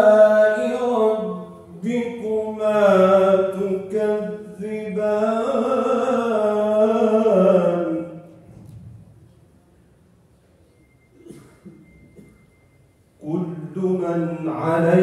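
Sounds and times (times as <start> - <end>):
man reciting in melodic chant: 0.0 - 8.4, 13.2 - 15.0.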